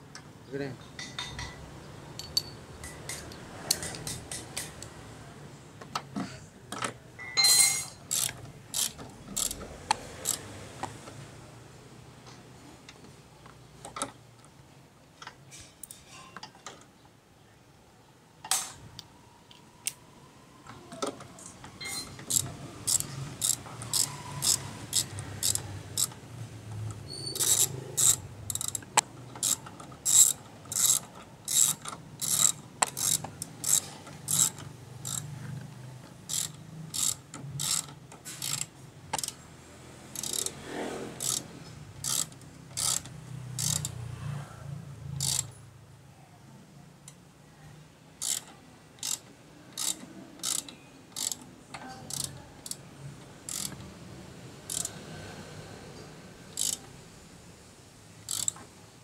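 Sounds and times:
ratchet wrench clicking: 7.7 - 10.5, 21.8 - 26.2, 26.8 - 35.3, 36.2 - 39.4, 40.1 - 40.6, 41.2 - 44.0, 45.2 - 45.5, 48.2 - 49.2, 49.8 - 51.5, 52.1 - 52.8, 53.4 - 53.9, 54.6 - 55.0, 56.5 - 56.9, 58.2 - 58.6.

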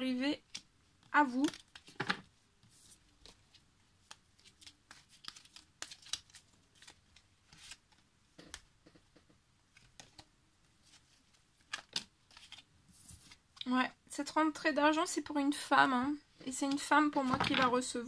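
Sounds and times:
cards clicking and rustling: 0.4 - 2.3, 3.0 - 9.0, 9.7 - 10.3, 10.9 - 13.5.

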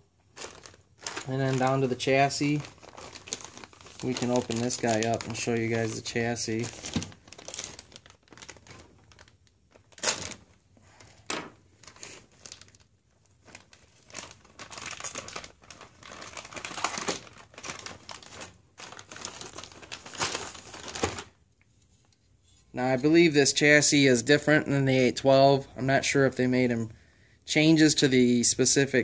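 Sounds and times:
plastic bag crinkling: 0.2 - 21.4.

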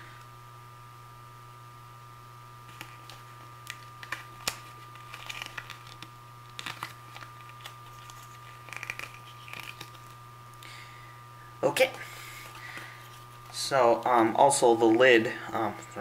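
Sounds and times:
low hum: 0.0 - 16.0
paper pages rustling: 2.7 - 10.2.

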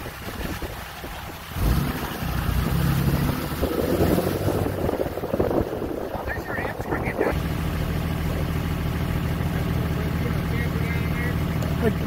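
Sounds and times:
wind buffeting microphone: 0.0 - 7.4
vehicle engine and tyres: 0.0 - 12.0.

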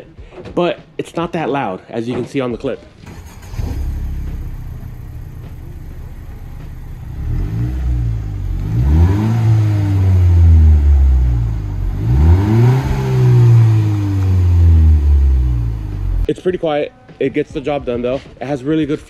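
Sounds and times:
car engine idling and revving: 3.0 - 16.3.

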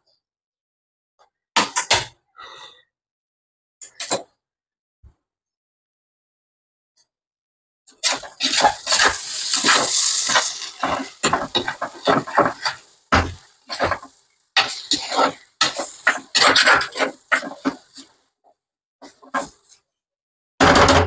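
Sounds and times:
metal utensils clattering on pots: 8.0 - 18.1.

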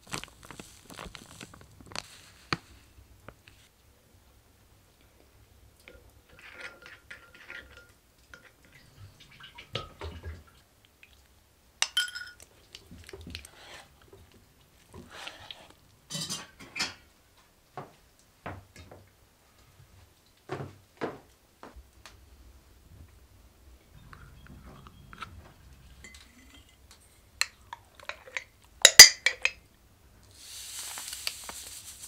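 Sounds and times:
spoon and dishes clinking: 11.8 - 12.5, 16.1 - 17.1, 24.0 - 29.6.

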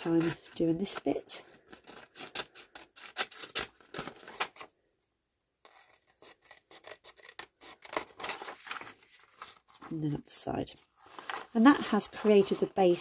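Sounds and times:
paper rustling: 0.0 - 4.7, 7.7 - 10.1, 10.8 - 13.0
scissors snipping paper: 5.6 - 8.8.

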